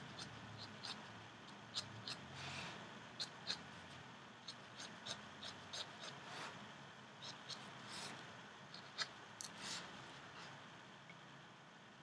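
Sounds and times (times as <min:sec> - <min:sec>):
pen scratching on paper: 0:00.0 - 0:03.7, 0:04.5 - 0:06.6, 0:07.2 - 0:08.2.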